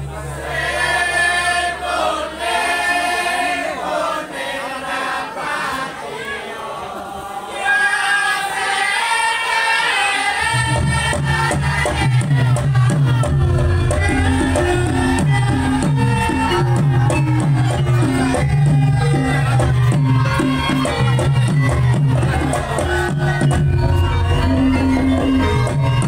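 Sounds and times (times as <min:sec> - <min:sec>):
people singing wavering melody: 0:00.0 - 0:26.0
gamelan drums and percussion: 0:10.4 - 0:26.0.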